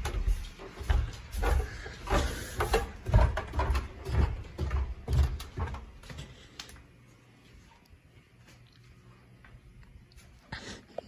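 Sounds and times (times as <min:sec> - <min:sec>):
footsteps going down stairs: 0:00.0 - 0:07.7.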